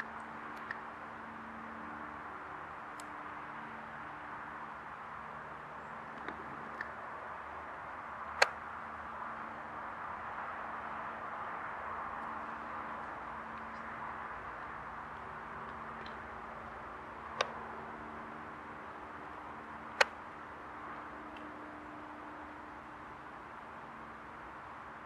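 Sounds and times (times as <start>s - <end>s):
small ticks: 0.0s - 0.9s, 2.9s - 3.2s, 6.1s - 7.0s
distant helicopter drone: 0.0s - 25.0s.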